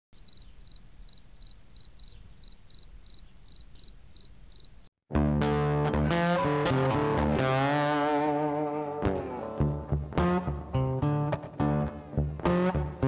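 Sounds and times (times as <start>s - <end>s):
cricket chirping: 0.2s - 4.9s.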